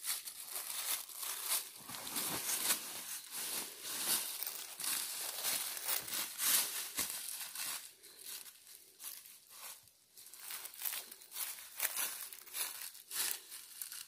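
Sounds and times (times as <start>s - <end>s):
footsteps crunching dry leaves: 0.0s - 14.0s.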